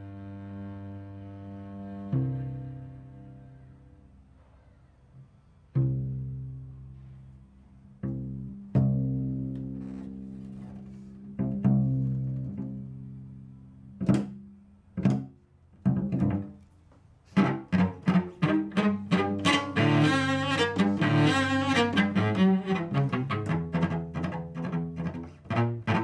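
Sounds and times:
solo cello playing: 0.0 - 4.2, 5.7 - 26.0.

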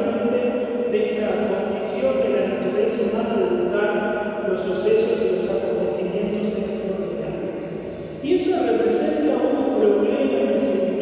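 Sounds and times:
man speaking into microphone: 0.0 - 11.0.

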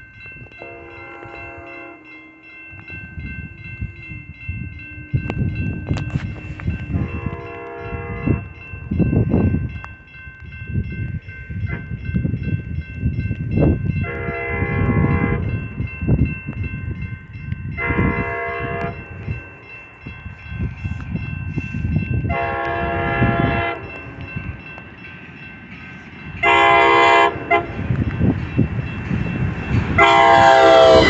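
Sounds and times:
crossing warning bell ringing: 0.0 - 31.0
low train rumble: 0.0 - 31.0
train horn blasts: 0.6 - 2.2, 6.8 - 8.6, 14.0 - 15.5, 17.8 - 19.1, 22.3 - 24.0, 26.4 - 27.9, 30.0 - 31.0.

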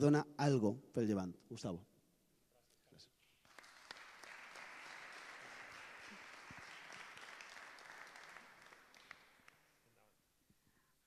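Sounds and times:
faint audience applauding: 3.2 - 9.9.

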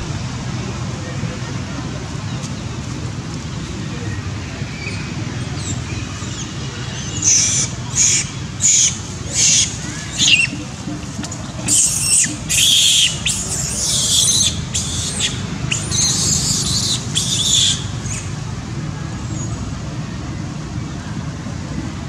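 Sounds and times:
low background rumble: 0.0 - 22.0
monkeys screaming: 7.0 - 18.3.

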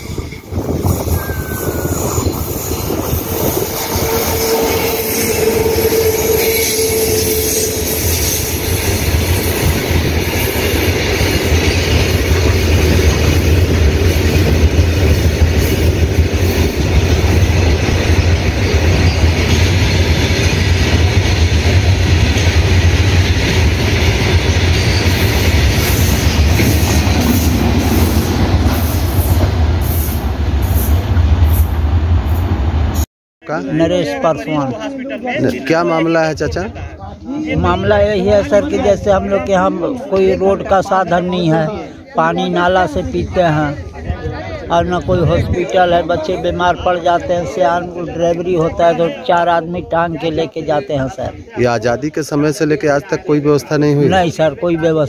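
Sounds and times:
train wheels rumbling on rails: 0.0 - 33.0.

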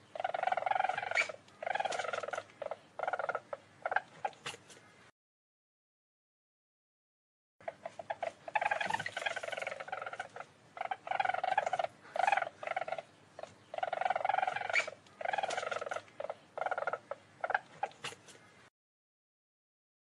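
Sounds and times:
weasel trilling calls: 0.0 - 4.4, 7.6 - 18.2.

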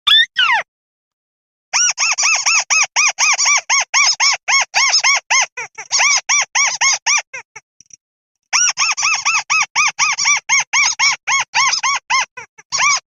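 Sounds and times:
rail squeaky call: 0.1 - 0.6.

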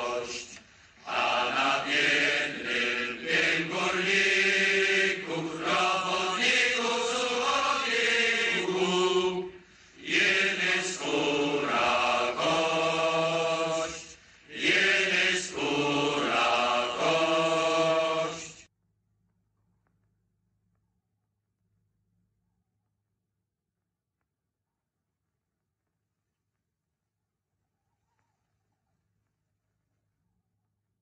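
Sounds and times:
voices singing a chant-like song: 0.0 - 18.7.

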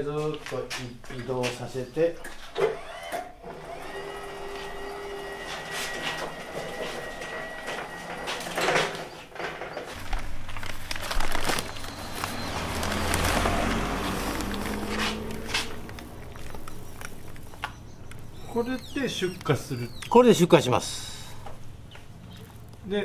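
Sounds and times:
paper sack rustling: 9.9 - 19.8.

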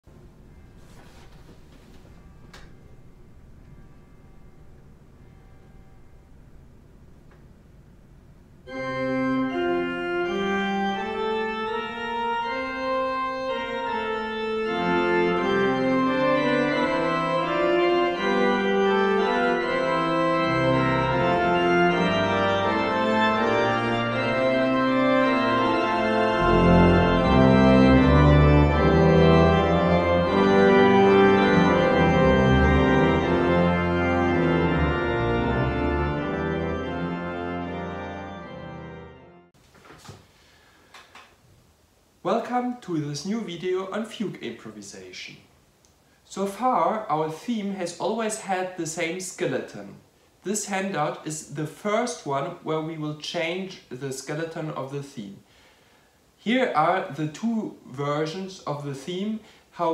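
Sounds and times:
organ playing: 0.3 - 39.6.

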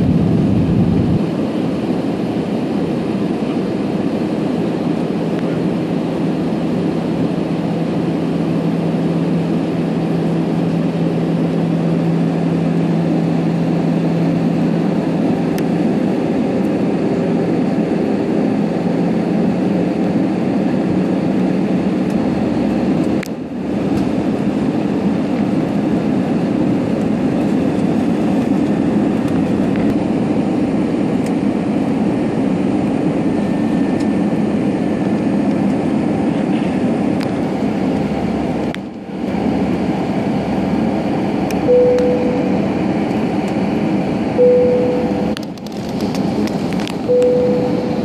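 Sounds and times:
airliner cabin noise: 0.0 - 48.0
short beeps: 41.6 - 42.6, 44.4 - 45.3, 47.0 - 48.0.

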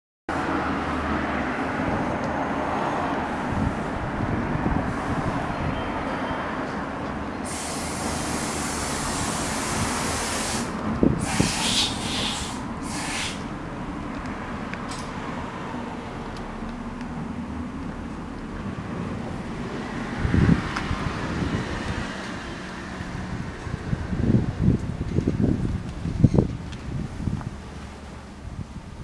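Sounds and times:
hiss: 7.4 - 13.5.

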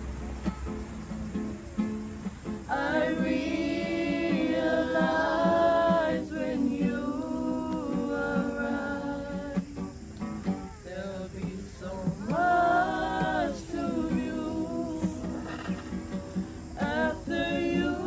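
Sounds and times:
strummed acoustic guitar: 0.0 - 18.0
group of voices singing: 2.7 - 9.9, 10.8 - 18.0.

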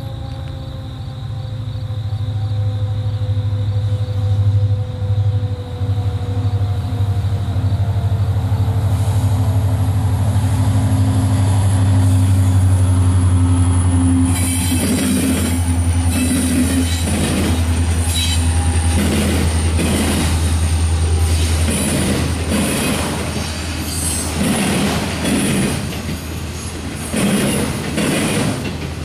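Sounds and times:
diesel locomotive engine drone: 0.0 - 29.0
wheels rushing on rails: 0.0 - 29.0
wheel squeal: 14.3 - 20.1.

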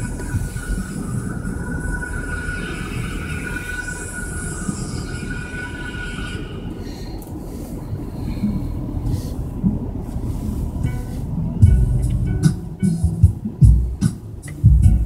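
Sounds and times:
thin whine and hiss: 0.0 - 8.6
road and tyre rumble: 0.0 - 15.0.

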